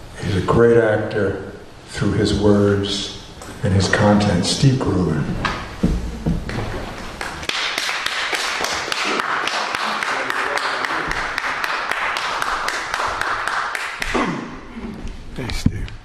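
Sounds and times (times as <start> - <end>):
audience applauding: 7.1 - 14.2.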